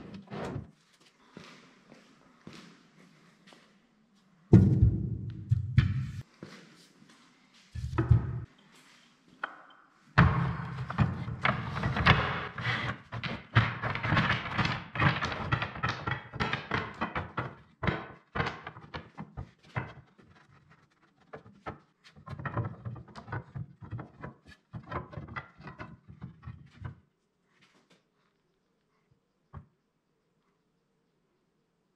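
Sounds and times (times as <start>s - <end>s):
wooden strips knocking and clattering: 7.8s - 8.5s, 10.2s - 27.1s.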